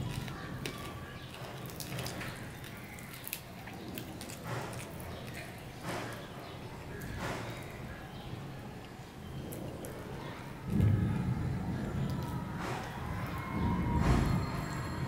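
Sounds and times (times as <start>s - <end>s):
person chewing: 0.0s - 7.9s
fingers squishing rice: 0.0s - 11.0s.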